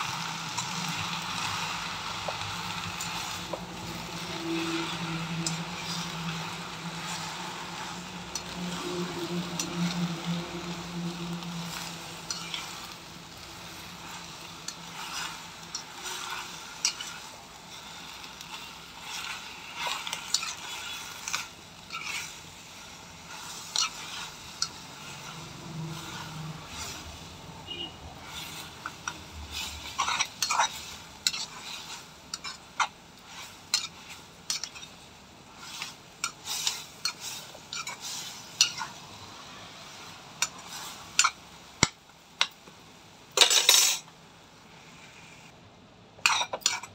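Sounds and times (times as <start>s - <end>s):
leaves sizzling in oil: 0.0s - 45.5s, 46.2s - 46.9s
spoon scraping and clinking pan: 2.2s - 27.0s, 27.7s - 35.0s, 35.6s - 38.9s, 43.4s - 44.1s, 46.2s - 46.9s.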